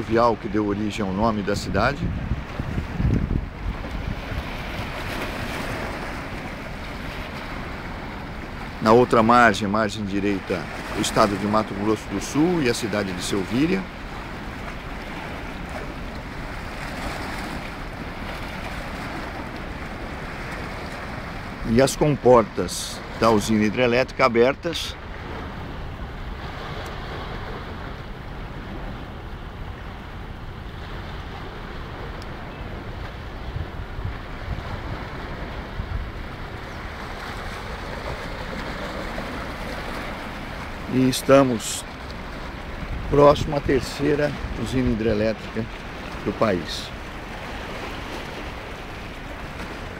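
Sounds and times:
choppy river water: 0:00.0 - 0:49.9
wind on microphone: 0:01.1 - 0:08.8, 0:24.9 - 0:49.9.

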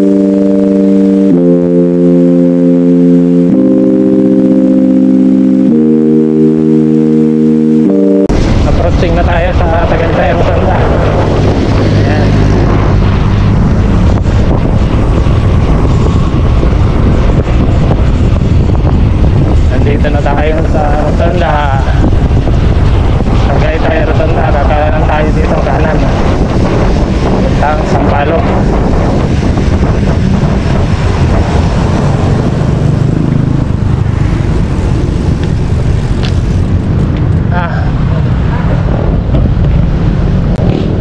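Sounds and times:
wind rushing over microphone: 0:08.3 - 0:41.0.

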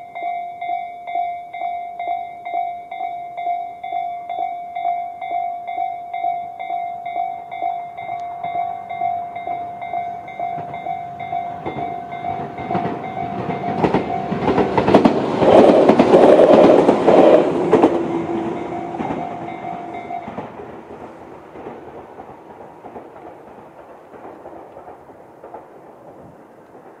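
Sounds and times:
level crossing warning bell: 0:00.0 - 0:20.9
train wheels clattering over rail joints: 0:08.1 - 0:27.0.

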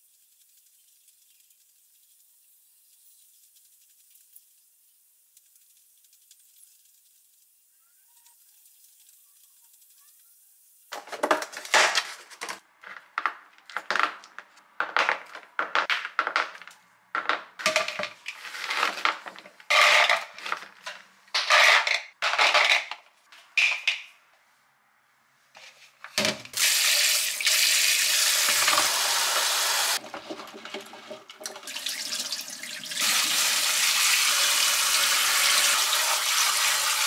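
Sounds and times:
grapes clattering into a bowl: 0:10.9 - 0:22.8.

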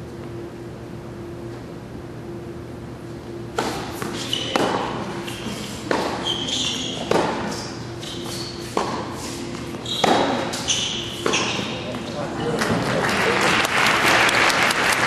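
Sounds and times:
shoes squeaking on court: 0:03.3 - 0:12.4
racket striking tennis ball: 0:03.5 - 0:12.2
tennis ball bouncing: 0:03.5 - 0:12.2.

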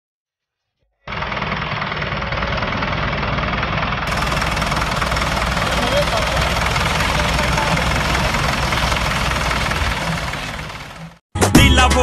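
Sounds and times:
diesel tractor engine rumbling: 0:01.1 - 0:11.2.

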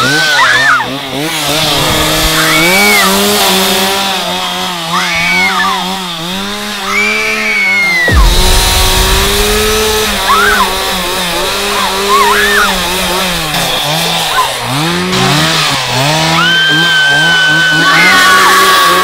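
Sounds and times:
chainsaw engine revving: 0:00.0 - 0:19.0
woman screaming: 0:16.3 - 0:19.0.

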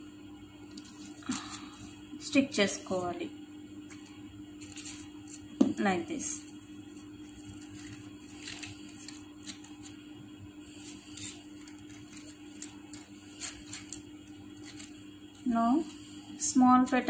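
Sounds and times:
low background hum: 0:00.0 - 0:17.0
paper petals rustling and crackling: 0:00.7 - 0:02.0, 0:06.4 - 0:10.0, 0:10.6 - 0:17.0.

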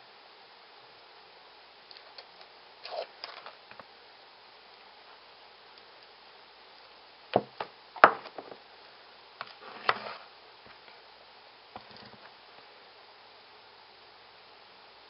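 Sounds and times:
scrape across metal plate: 0:09.6 - 0:10.3.

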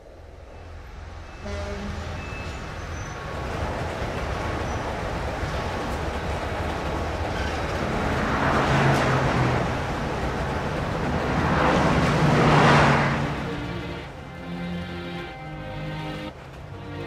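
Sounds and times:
city traffic rumble: 0:00.0 - 0:17.0
vehicles passing: 0:00.0 - 0:17.0.

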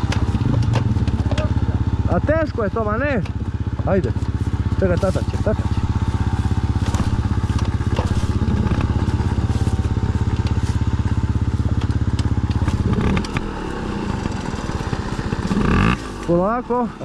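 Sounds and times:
dirt bike engine idling: 0:00.0 - 0:17.0
dry leaves crackling: 0:04.2 - 0:12.8.

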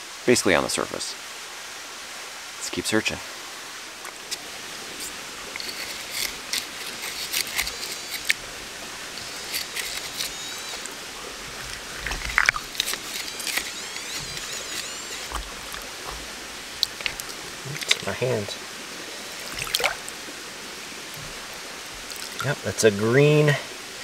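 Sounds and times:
stream rushing: 0:00.0 - 0:24.0
pebbles clicking underwater: 0:04.0 - 0:18.6, 0:19.2 - 0:20.2, 0:21.1 - 0:22.5
wavering high chirps: 0:09.1 - 0:20.1.

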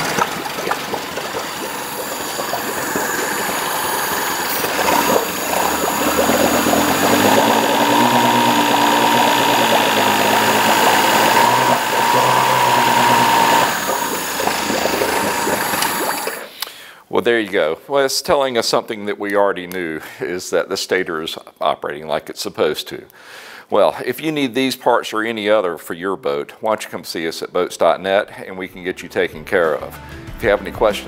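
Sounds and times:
outboard motor running: 0:00.0 - 0:16.5.

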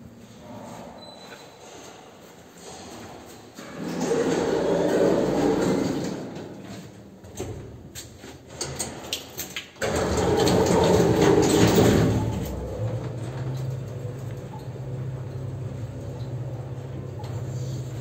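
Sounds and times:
lift doors rumbling shut: 0:03.6 - 0:07.8, 0:09.8 - 0:18.0
steady low hum: 0:11.5 - 0:18.0.

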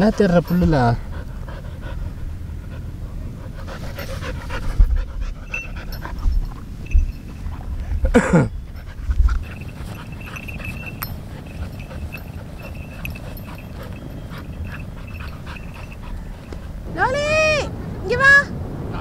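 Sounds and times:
dog panting: 0:00.0 - 0:17.2.

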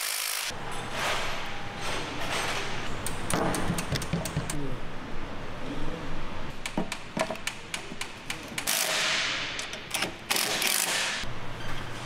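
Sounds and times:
impact wrench running: 0:00.0 - 0:00.5, 0:08.6 - 0:09.2, 0:10.3 - 0:11.2.

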